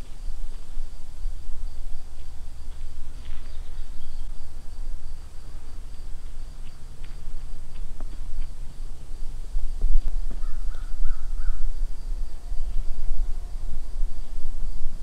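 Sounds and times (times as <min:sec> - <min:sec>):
high insect buzz: 0:00.0 - 0:15.0
bird calls: 0:02.7 - 0:04.5, 0:10.2 - 0:14.4.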